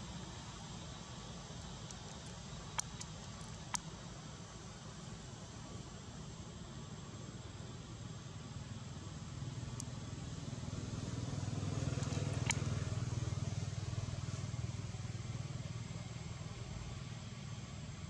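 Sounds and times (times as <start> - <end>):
passing vehicle engine hum: 9.4 - 15.6.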